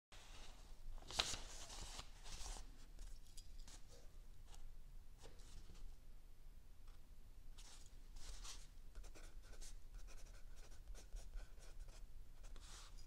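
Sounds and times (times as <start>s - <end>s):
book pages rustling: 0.2s - 3.8s.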